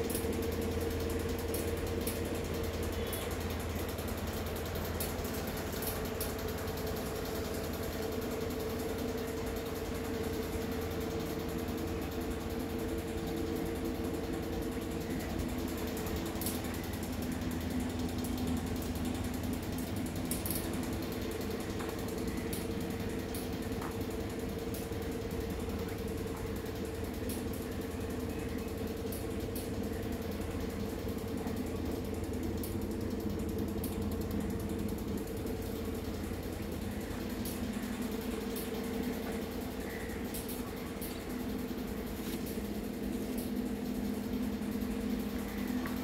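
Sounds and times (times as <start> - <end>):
steady low hum: 0.0 - 46.0
small clicks: 4.9 - 8.2, 16.0 - 17.0, 18.1 - 26.5, 31.5 - 46.0.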